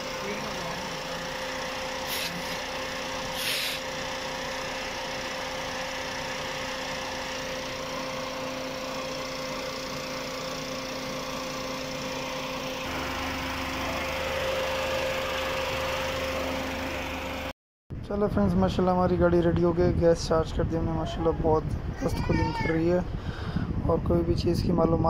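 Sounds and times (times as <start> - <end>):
car engine idling: 0.0 - 17.5
steady whine: 0.0 - 18.6
deep steady hum: 0.0 - 22.0.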